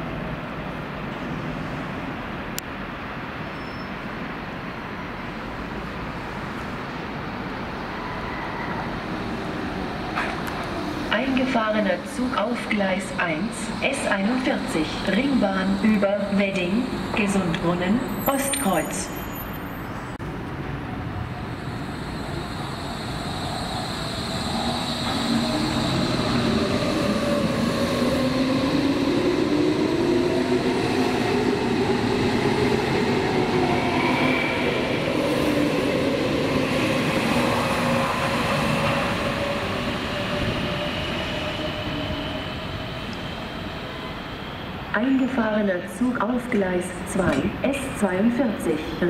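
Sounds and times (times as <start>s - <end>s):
rumbling rail noise: 0.0s - 49.0s.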